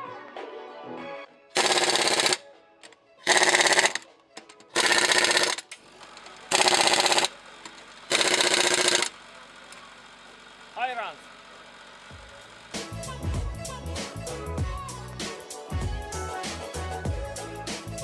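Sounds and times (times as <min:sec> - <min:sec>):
impact wrench rattling: 0:01.6 - 0:02.4, 0:03.2 - 0:09.1.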